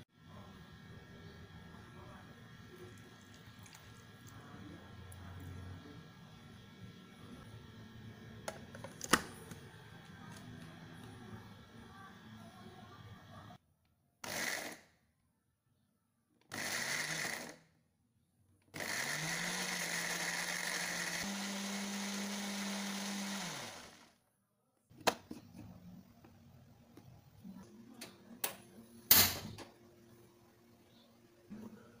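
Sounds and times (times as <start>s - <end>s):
electric blender grinding: 14.2s - 14.8s, 16.5s - 17.6s, 18.8s - 24.2s.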